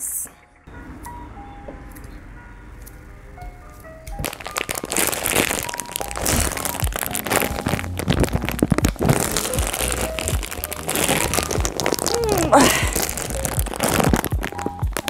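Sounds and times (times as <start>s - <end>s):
soft background music: 0.0s - 15.0s
plastic bag crinkling: 4.2s - 15.0s.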